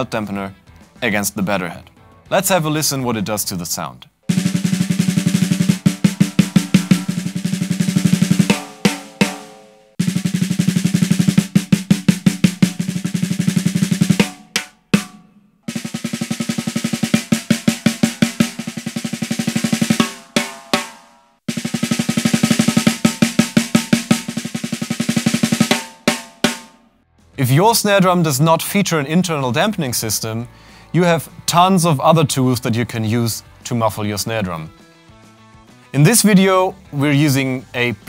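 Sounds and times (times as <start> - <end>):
snare drum rolls and hits: 4.3 - 26.8.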